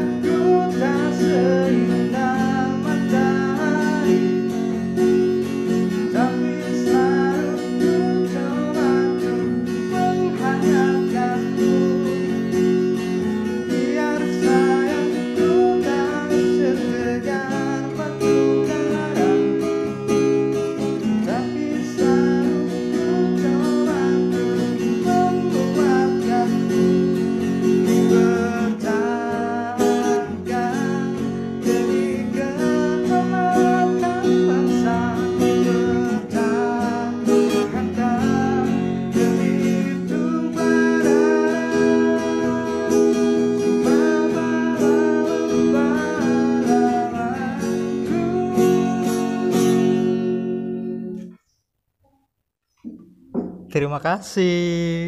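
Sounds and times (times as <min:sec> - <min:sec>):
acoustic guitar strumming: 0:00.0 - 0:51.6, 0:52.7 - 0:55.0.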